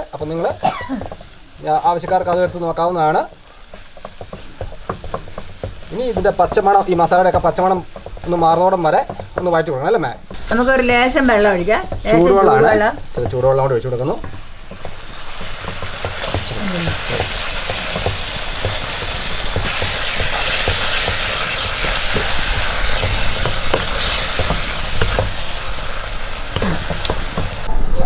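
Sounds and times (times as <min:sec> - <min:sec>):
spatula stirring and scraping: 0:00.0 - 0:27.7
masala sizzling in a pan: 0:00.0 - 0:28.0.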